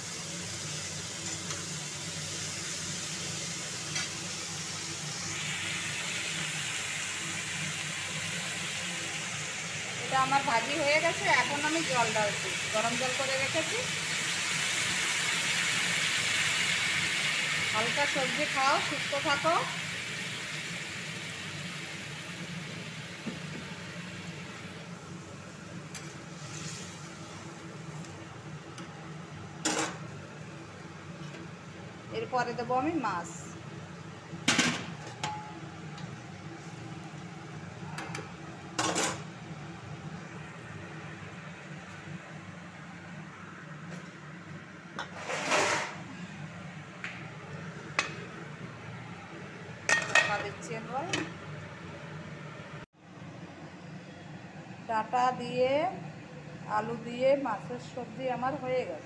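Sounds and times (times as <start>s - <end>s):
water hissing in hot pan: 0.0s - 28.3s.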